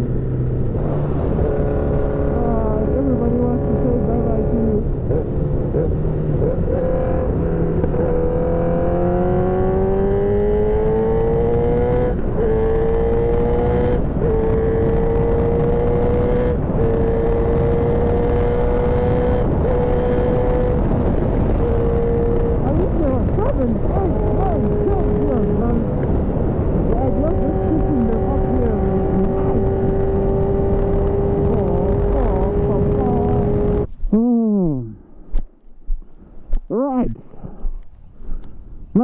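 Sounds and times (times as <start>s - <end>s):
motorcycle engine shifting gears: 0.0s - 34.2s
road noise: 0.0s - 39.0s
wind rush: 7.0s - 34.1s.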